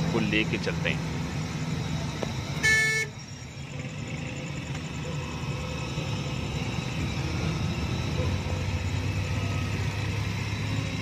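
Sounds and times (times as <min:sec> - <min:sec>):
traffic rumble: 0:00.0 - 0:11.0
vehicle horn honk: 0:02.6 - 0:03.2.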